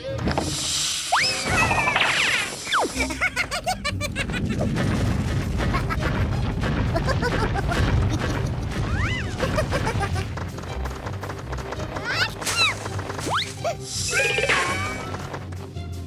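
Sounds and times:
boulder rolling rumble: 3.6s - 13.4s
cartoon music: 11.9s - 15.4s.

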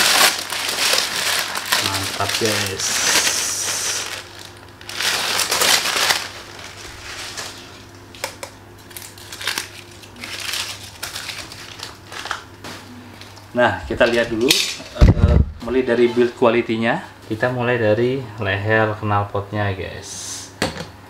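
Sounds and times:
paper crumpling and rustling: 0.0s - 7.9s, 8.8s - 13.4s.

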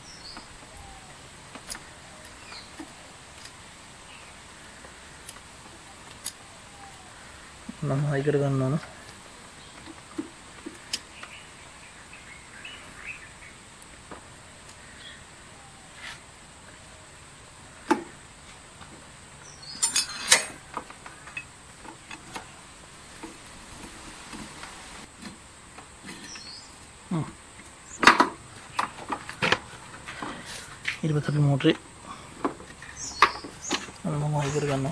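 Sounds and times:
sharp metal clinks: 19.7s - 20.5s
tools and parts clicking and knocking: 19.8s - 22.5s, 28.0s - 29.6s.

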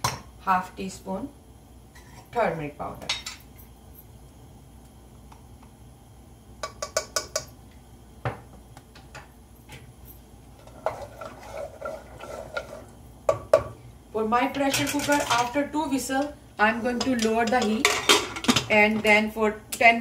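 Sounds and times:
wooden spoon scraping in pot: 10.5s - 13.0s.

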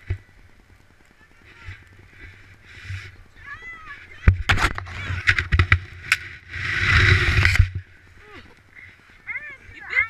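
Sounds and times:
snow scraping over camera: 1.3s - 8.0s
knocks and clatter on camera: 4.3s - 6.2s.

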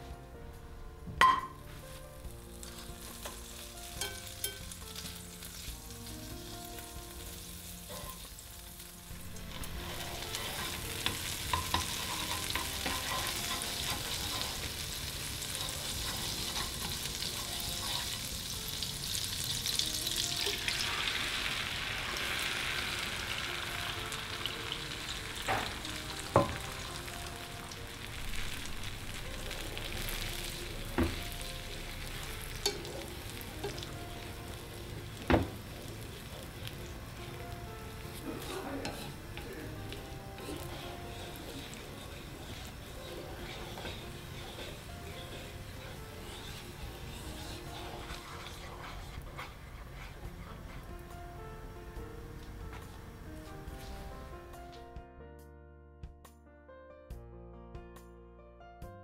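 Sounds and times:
butter sizzling in frying pan: 2.3s - 51.2s
egg stirred with chopsticks: 9.8s - 18.9s, 37.8s - 51.1s.

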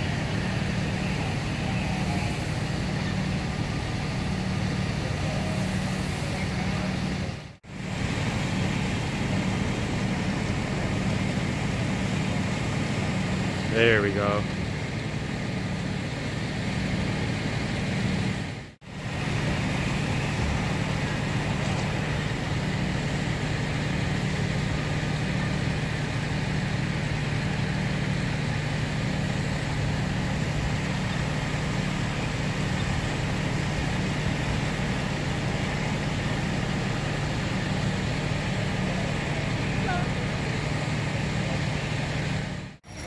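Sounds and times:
diesel engines idling: 0.0s - 43.0s
outdoor noise: 0.0s - 43.0s.

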